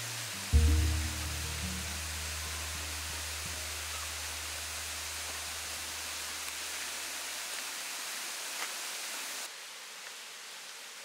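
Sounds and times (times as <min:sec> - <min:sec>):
rushing hiss of forest ambience: 0:00.0 - 0:11.0
low background music: 0:00.5 - 0:05.3.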